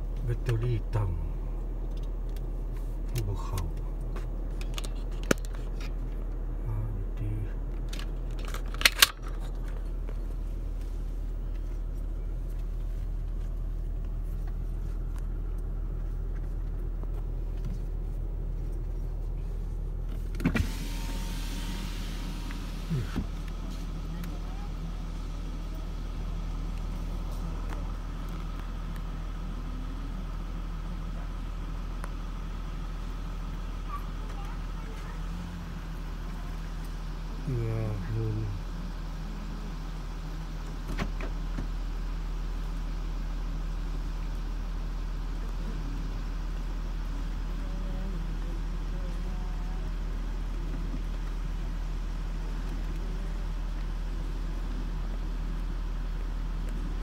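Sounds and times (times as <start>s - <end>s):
car engine idling: 0.0s - 57.0s
low mechanical hum: 0.0s - 57.0s
sharp clicks in car cabin: 20.1s - 20.8s.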